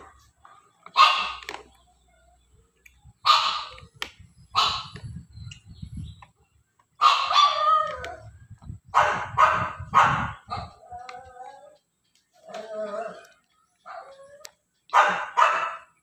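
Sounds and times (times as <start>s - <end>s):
dog barking: 0.8s - 1.5s, 3.2s - 3.8s, 4.6s - 5.0s, 7.0s - 7.7s, 9.0s - 10.8s, 14.9s - 16.0s.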